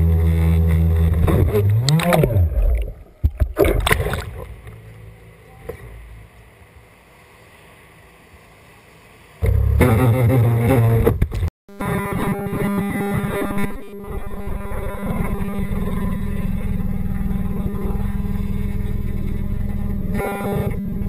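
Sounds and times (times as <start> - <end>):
loud droning sound: 0.0 - 11.1, 11.7 - 21.0
water splashing against board: 1.4 - 4.9
water sloshing and lapping: 1.5 - 5.0.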